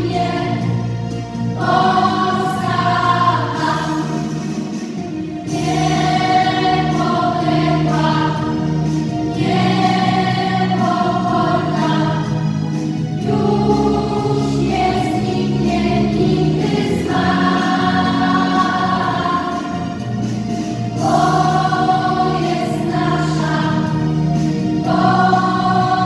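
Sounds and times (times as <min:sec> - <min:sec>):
children's choir singing: 0:00.0 - 0:26.0.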